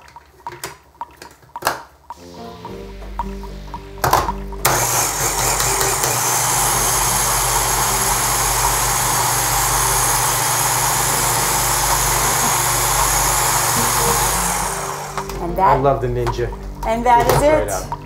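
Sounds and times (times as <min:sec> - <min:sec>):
blender motor running: 0:04.6 - 0:15.4.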